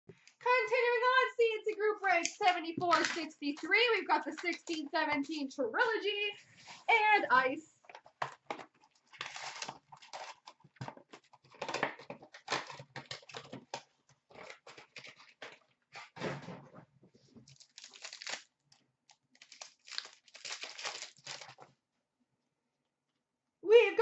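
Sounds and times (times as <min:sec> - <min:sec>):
packaging crinkling and ripping: 0:08.5 - 0:15.7, 0:17.5 - 0:21.8.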